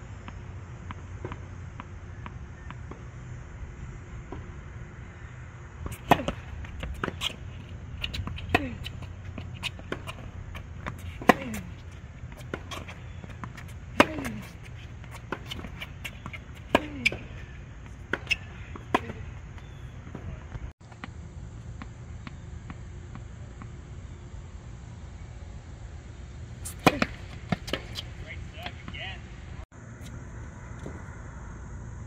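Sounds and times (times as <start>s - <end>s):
racquets striking tennis ball: 5.7s - 23.8s, 26.6s - 29.1s
tennis ball bouncing: 5.8s - 23.8s, 26.6s - 29.0s.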